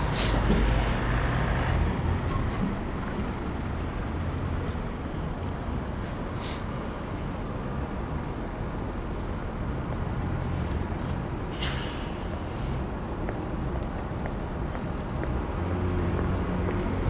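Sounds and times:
air brakes hissing: 0.0 - 0.6, 6.3 - 6.8, 11.5 - 12.9
road traffic: 0.0 - 17.0.

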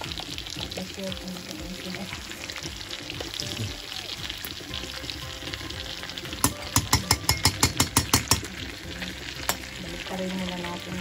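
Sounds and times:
meat patties sizzling in fat: 0.0 - 11.0
utensil knocking on steel pot: 6.4 - 8.6.

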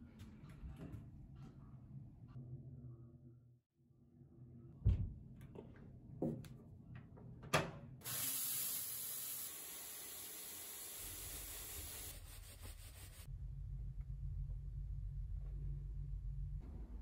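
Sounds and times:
shower head spraying water: 8.0 - 12.2.

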